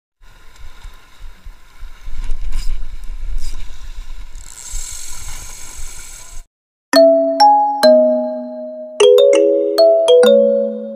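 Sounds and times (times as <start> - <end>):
wind buffeting microphone: 0.2 - 6.2.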